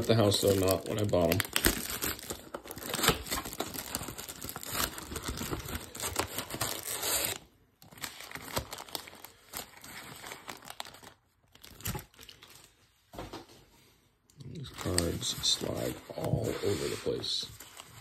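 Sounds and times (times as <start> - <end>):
plastic wrap crackling: 0.0 - 12.8, 14.6 - 18.0
cardboard rustles and scrapes: 14.8 - 18.0.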